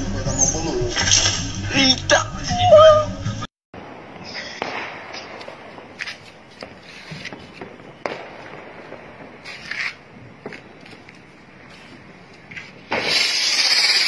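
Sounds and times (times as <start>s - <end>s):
sharp firework cracks: 3.8s - 11.1s, 12.8s - 14.0s
firework fuse hissing: 4.2s - 7.8s, 8.4s - 10.1s, 12.7s - 14.0s.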